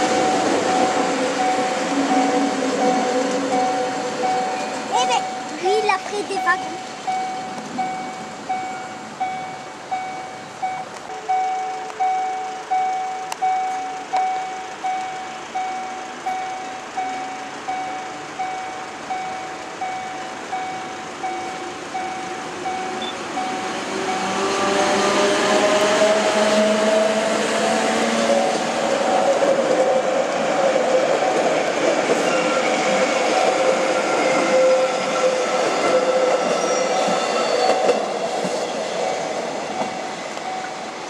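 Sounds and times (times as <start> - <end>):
level crossing warning bell: 0.0 - 24.6, 39.8 - 41.0
electric locomotive motors whining: 0.0 - 41.0
train wheels rumbling: 0.0 - 41.0.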